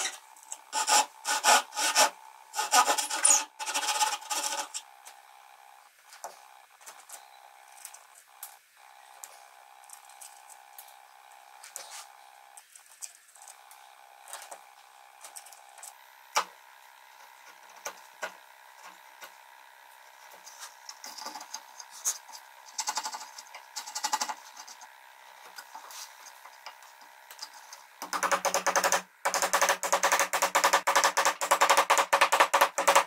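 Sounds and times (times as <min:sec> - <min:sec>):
chisel scraping wood: 0:00.0 - 0:04.9.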